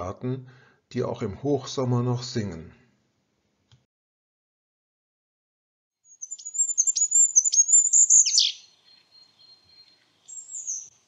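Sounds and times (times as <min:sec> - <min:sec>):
bird singing high notes: 0:06.1 - 0:11.0.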